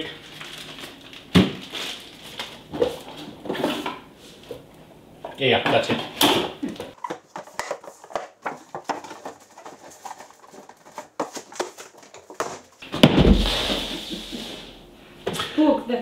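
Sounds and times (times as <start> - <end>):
cardboard boxes being handled: 6.9 - 14.4
low thump: 13.0 - 14.0.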